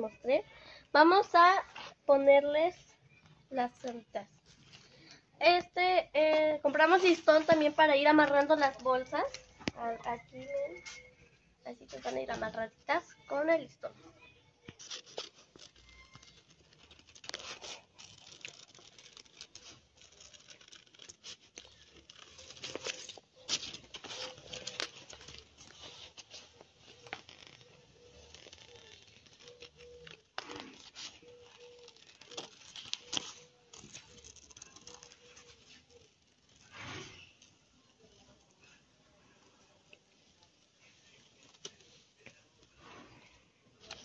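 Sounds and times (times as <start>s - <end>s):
paper rustling and crinkling: 6.2s - 12.7s, 14.6s - 44.0s
scissors snipping paper: 14.7s - 36.7s.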